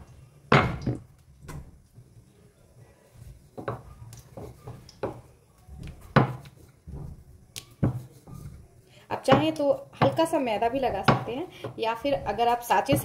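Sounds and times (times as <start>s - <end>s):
rolling pin working dough: 3.1s - 13.0s.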